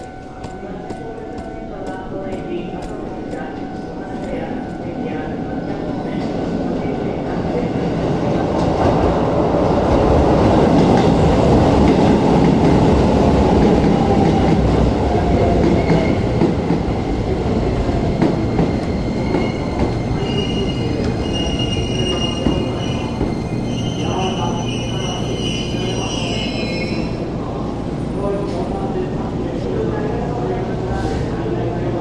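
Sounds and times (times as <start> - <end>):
train wheels rumbling on rails: 0.0 - 32.0
high brake squeals: 19.1 - 27.2.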